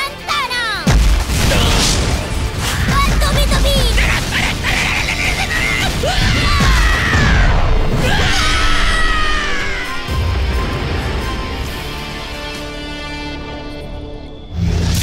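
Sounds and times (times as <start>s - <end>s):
dramatic action music: 0.0s - 15.0s
cartoon characters screaming: 3.7s - 10.1s.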